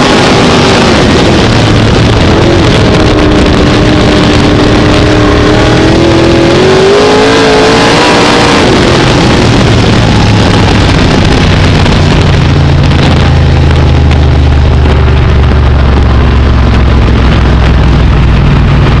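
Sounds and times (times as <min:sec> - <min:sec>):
race car engine at low revs: 0:00.0 - 0:19.0.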